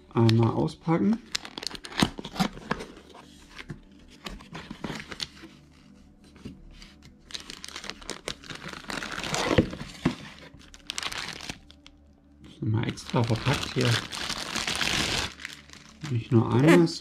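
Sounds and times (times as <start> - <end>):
packaging crinkling and rustling: 1.2 - 6.0, 7.2 - 12.0, 12.9 - 16.7.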